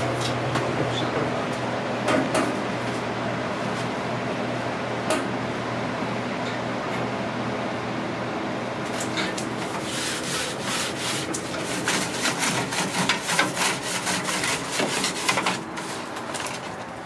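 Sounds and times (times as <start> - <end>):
scrubbing wire grates: 9.0 - 16.8.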